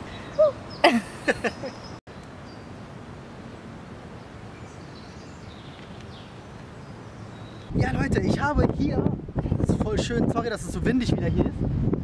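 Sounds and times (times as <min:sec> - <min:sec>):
woodland background: 0:00.0 - 0:08.5.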